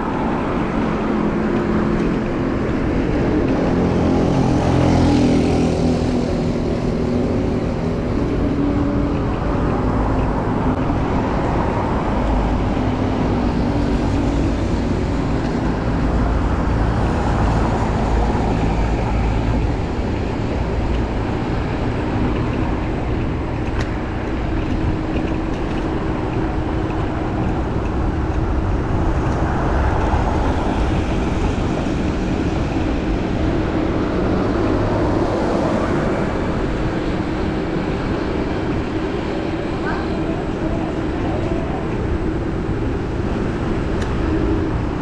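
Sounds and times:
low engine hum: 0.0 - 45.0
passing cars and buses: 0.0 - 45.0.

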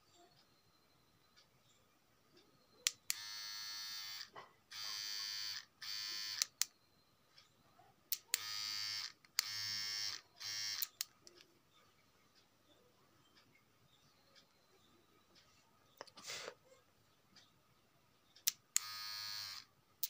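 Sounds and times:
beard trimmer buzzing: 3.1 - 6.4, 8.4 - 10.9, 18.8 - 19.7.

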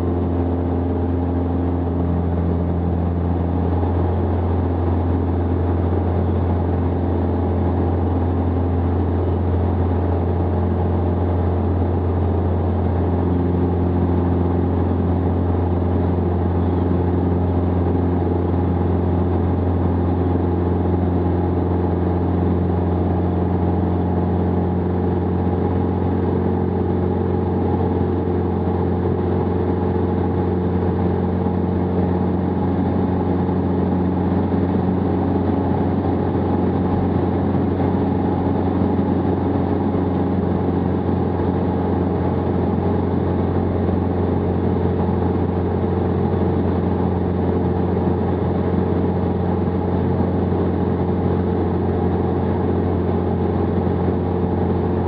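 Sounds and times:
light aircraft engine droning: 0.0 - 55.0.

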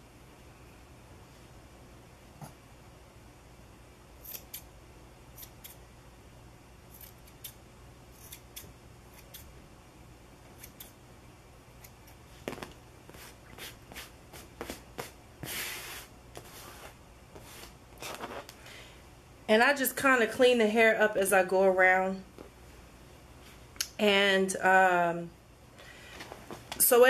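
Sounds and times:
scissors snipping fur: 4.2 - 4.7, 5.4 - 5.8, 6.9 - 7.6, 8.2 - 9.5, 10.5 - 11.0, 11.8 - 12.2.

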